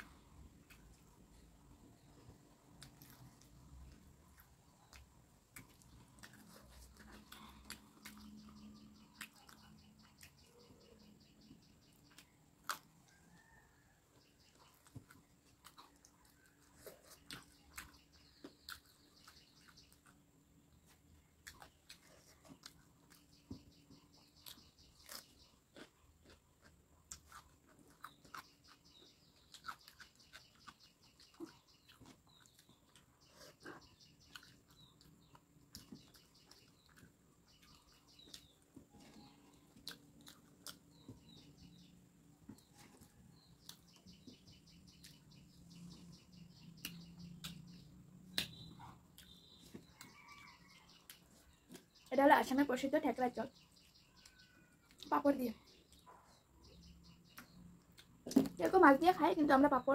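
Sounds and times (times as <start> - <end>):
person chewing food: 0.0 - 52.0, 57.3 - 58.6
mouth and finger clicks: 46.8 - 49.4.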